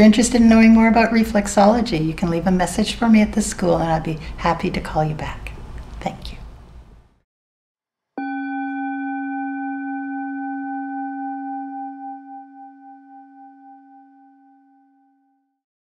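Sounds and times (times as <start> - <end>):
struck bell-like tone: 8.2 - 15.4.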